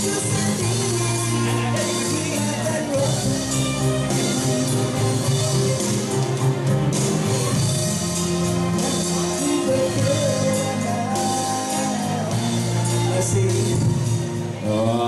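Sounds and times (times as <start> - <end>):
man singing: 0.0 - 4.4, 8.7 - 15.0
live band music: 0.0 - 15.0.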